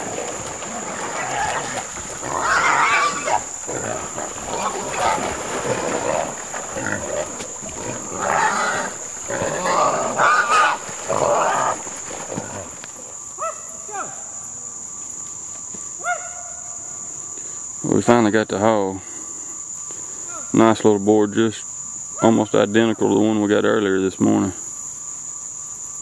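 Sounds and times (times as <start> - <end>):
dog growling: 0.0 - 13.1
hog squealing: 0.6 - 12.7.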